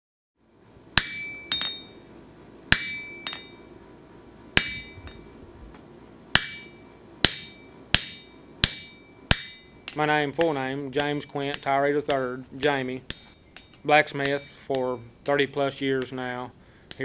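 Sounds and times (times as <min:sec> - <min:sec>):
hammer striking an anvil: 0:01.0 - 0:02.0, 0:02.7 - 0:03.6, 0:04.6 - 0:05.3, 0:06.4 - 0:17.0.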